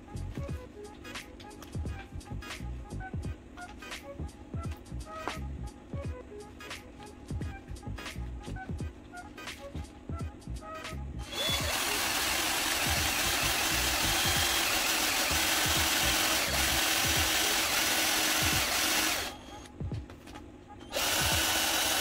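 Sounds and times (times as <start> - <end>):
background music: 0.0 - 22.0
cordless drill boring: 11.2 - 19.7, 20.9 - 22.0.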